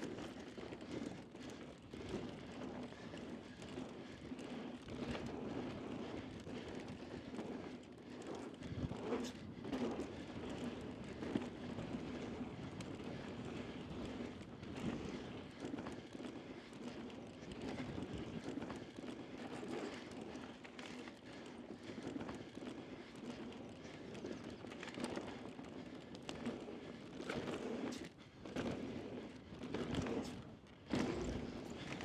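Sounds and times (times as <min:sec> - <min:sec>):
bike clicks and rattles: 0:00.0 - 0:32.0
bike tyres crunching on dirt: 0:27.2 - 0:32.0.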